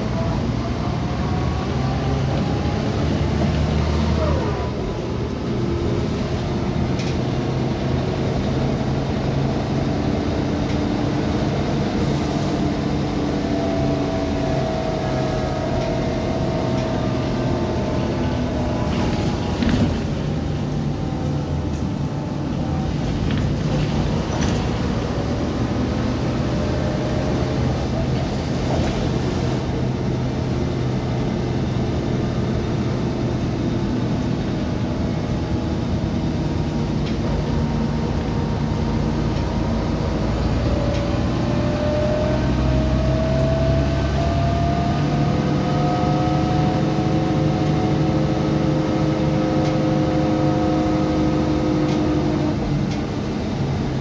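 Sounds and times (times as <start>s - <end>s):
bus diesel engine hum: 0.0s - 54.0s
rising whine: 36.5s - 53.8s.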